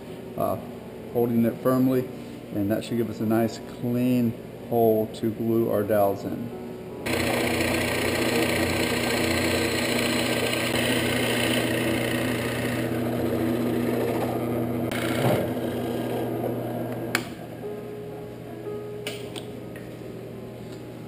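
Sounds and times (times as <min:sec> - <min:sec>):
drill bit cutting into wood: 0:07.1 - 0:16.6
drill press motor hum: 0:07.1 - 0:17.5.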